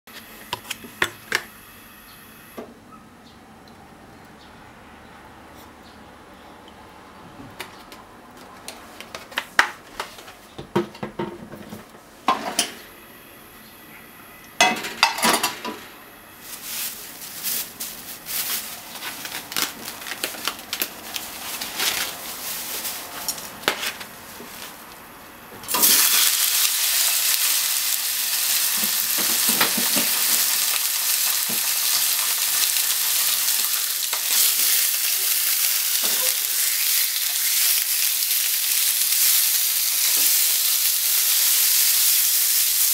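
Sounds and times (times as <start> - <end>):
meat sizzling in frying pan: 25.7 - 42.9.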